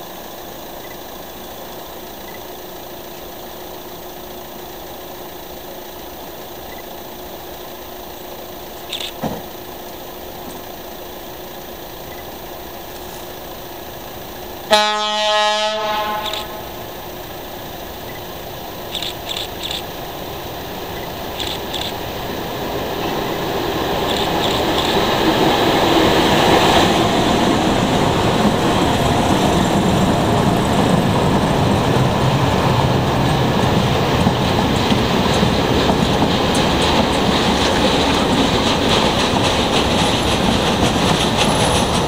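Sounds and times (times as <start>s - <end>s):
train rumbling: 0.0s - 42.0s
locomotive horn blast: 14.7s - 16.8s.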